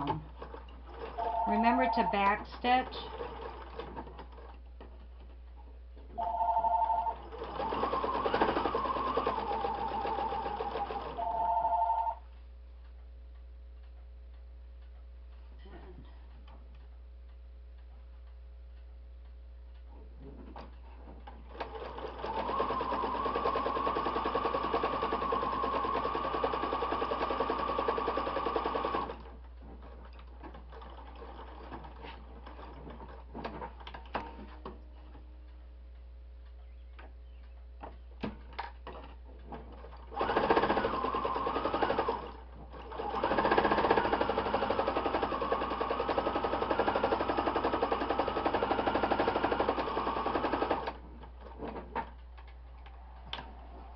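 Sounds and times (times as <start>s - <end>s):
sewing machine stitching: 0.0s - 4.6s, 6.2s - 12.1s, 20.5s - 34.6s, 38.9s - 52.1s.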